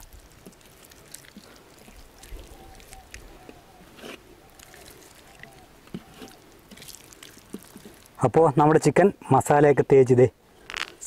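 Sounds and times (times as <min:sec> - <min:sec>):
hands squelching paste on chicken: 0:00.0 - 0:08.2.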